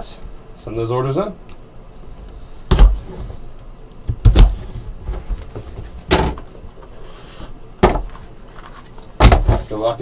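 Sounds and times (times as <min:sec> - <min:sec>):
box thumping on table: 0:09.2 - 0:09.7.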